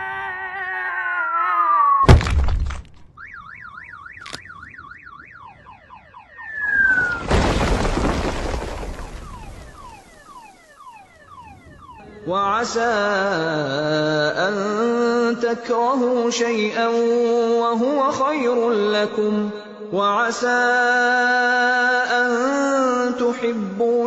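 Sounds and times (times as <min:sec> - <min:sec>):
boulder crash: 0:02.0 - 0:03.1, 0:06.5 - 0:10.6
rockslide crash: 0:02.1 - 0:03.1, 0:06.5 - 0:10.6
car alarm warbling and chirping: 0:03.1 - 0:13.8
cartoon falling whistle: 0:06.4 - 0:12.1.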